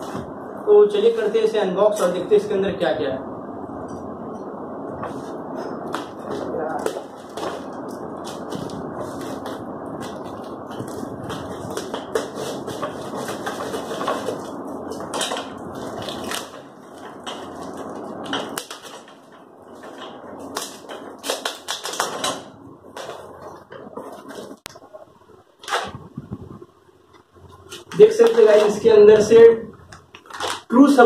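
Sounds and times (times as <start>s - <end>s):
cardboard and tape crackling: 5.0s - 24.9s, 27.6s - 29.0s, 29.9s - 31.0s
scissors cutting cardboard: 5.9s - 16.6s
plastic wrapping crackling: 5.9s - 24.9s, 27.6s - 29.0s, 29.8s - 31.0s.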